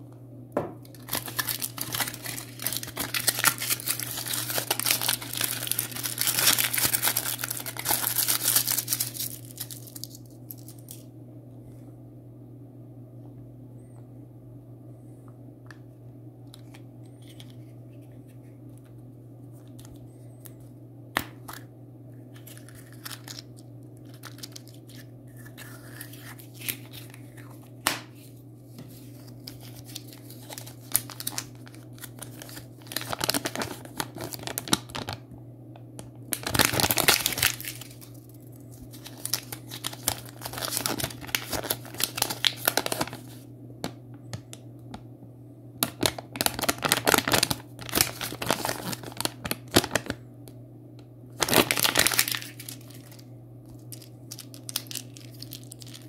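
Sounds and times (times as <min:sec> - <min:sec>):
steady low hum: 0:00.0 - 0:56.0
wrapper crinkling and tearing: 0:00.8 - 0:11.0, 0:22.3 - 0:28.1, 0:28.9 - 0:35.2, 0:36.3 - 0:43.4, 0:45.8 - 0:50.2, 0:51.4 - 0:56.0.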